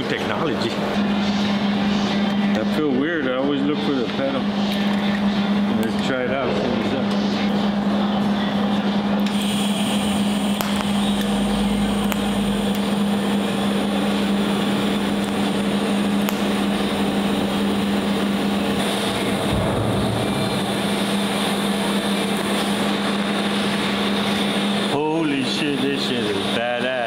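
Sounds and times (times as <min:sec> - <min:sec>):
welding electrical hum: 0:00.0 - 0:27.0
welding hiss: 0:09.2 - 0:24.6.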